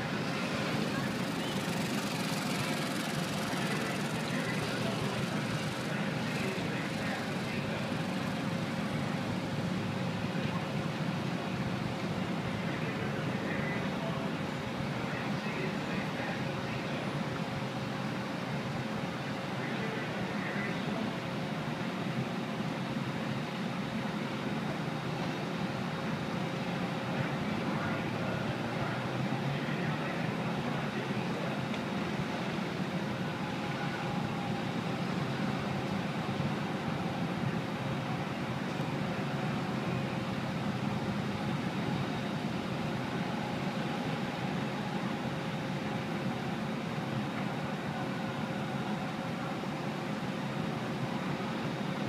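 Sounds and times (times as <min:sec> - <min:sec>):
faint constant tones: 0:00.0 - 0:52.0
swing ride rumbling: 0:00.0 - 0:52.0.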